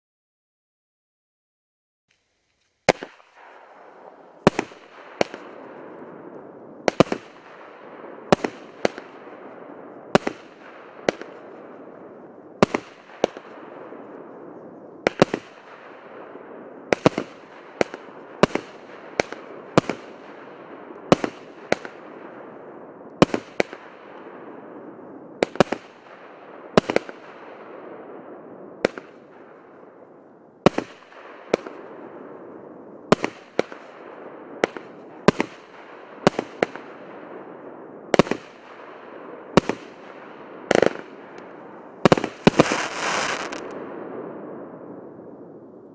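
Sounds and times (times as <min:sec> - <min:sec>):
firework crackle: 0:02.1 - 0:16.0, 0:39.5 - 0:43.8
firework bangs: 0:02.8 - 0:29.9, 0:30.6 - 0:45.3.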